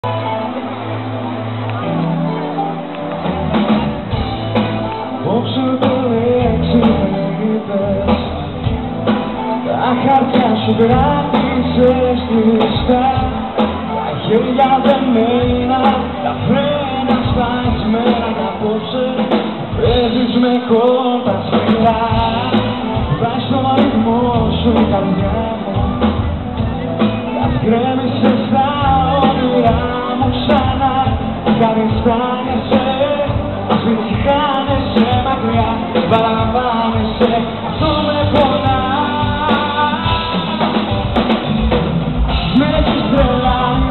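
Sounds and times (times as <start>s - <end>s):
live band playing pop song: 0.0s - 43.9s
person singing: 4.2s - 41.3s, 42.3s - 43.9s.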